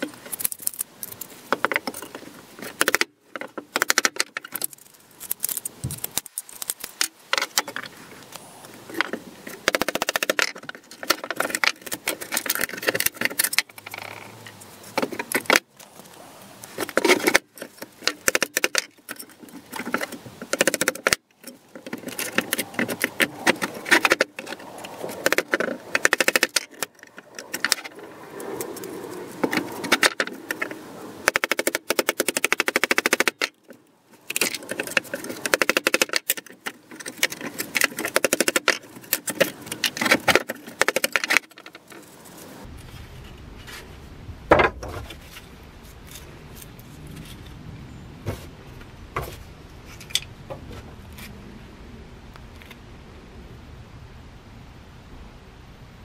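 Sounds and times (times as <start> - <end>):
metal parts knocking on wood: 0.0 - 6.2, 16.8 - 27.9, 29.4 - 42.0.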